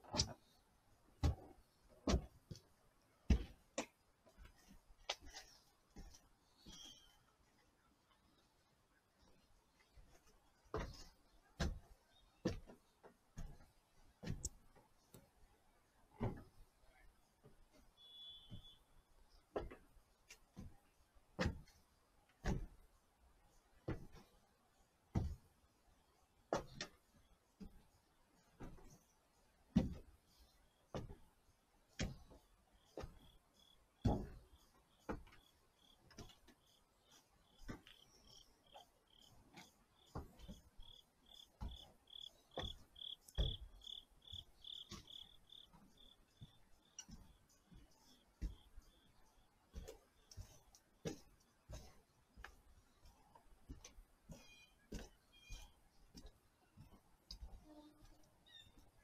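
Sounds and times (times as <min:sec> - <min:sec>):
footsteps on metal bleachers: 0:01.1 - 0:07.2, 0:10.0 - 0:15.3, 0:17.4 - 0:21.8, 0:22.4 - 0:22.9, 0:23.7 - 0:24.4, 0:25.1 - 0:25.6, 0:29.8 - 0:31.4, 0:32.0 - 0:59.0
insect chirping: 0:32.8 - 0:33.8, 0:34.6 - 0:36.0, 0:36.6 - 0:47.5.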